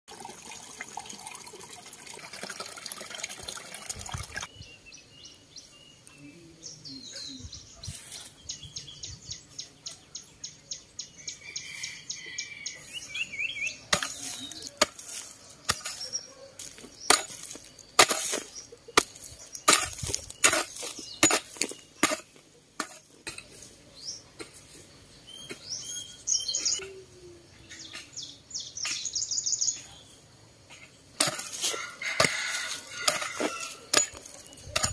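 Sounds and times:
water pouring into stone basin: 0:00.1 - 0:04.5
small birds chirping: 0:03.8 - 0:31.2, 0:32.8 - 0:34.9.

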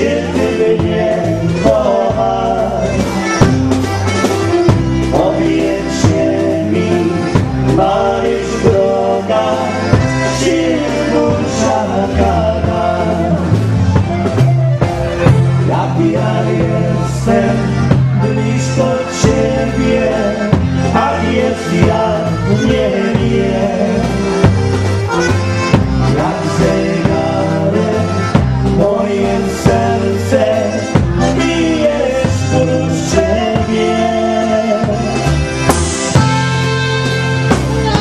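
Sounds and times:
accordion melody: 0:00.0 - 0:38.0
dance band playing a waltz: 0:00.0 - 0:38.0.

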